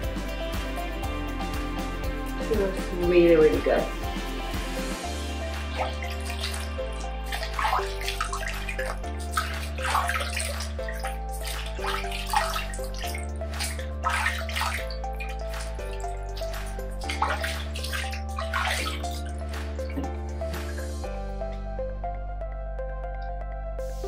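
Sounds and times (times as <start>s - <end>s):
slow background music: 0.0s - 24.0s
water splashing on face: 5.4s - 21.0s.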